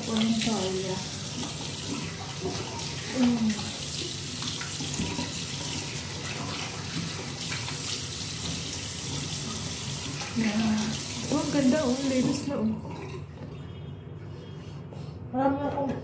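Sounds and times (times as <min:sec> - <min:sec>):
woman's voice: 0:00.0 - 0:01.1, 0:03.1 - 0:03.8, 0:10.4 - 0:12.9, 0:15.3 - 0:16.0
tap water running into sink: 0:00.0 - 0:13.6.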